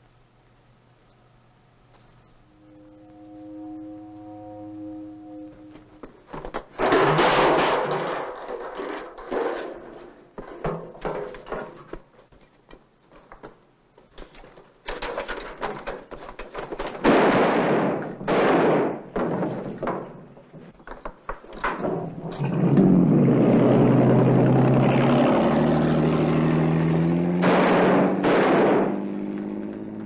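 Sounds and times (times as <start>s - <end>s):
knocks and scuffling: 5.7s - 17.0s, 18.8s - 22.8s
loud bursts of noise: 22.4s - 29.2s.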